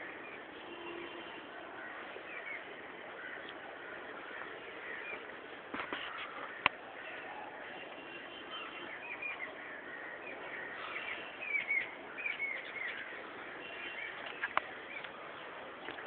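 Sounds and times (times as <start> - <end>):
steady background hiss: 0.0 - 16.0
small birds chirping: 8.5 - 16.0.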